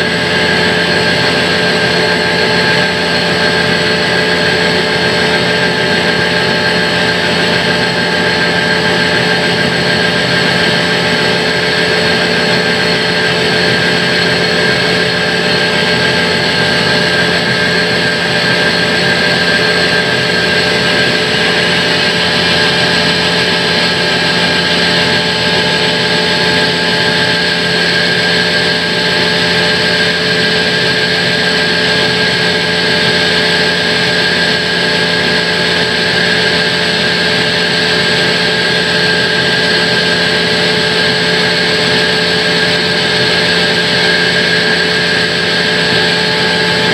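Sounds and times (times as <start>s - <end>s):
band saw cutting log: 0.0s - 46.9s.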